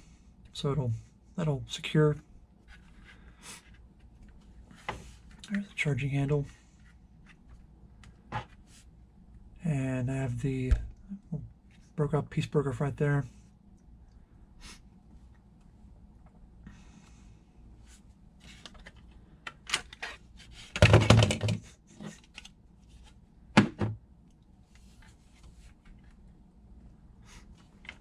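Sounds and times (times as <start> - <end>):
plastic clicks and knocks: 20.8 - 21.6.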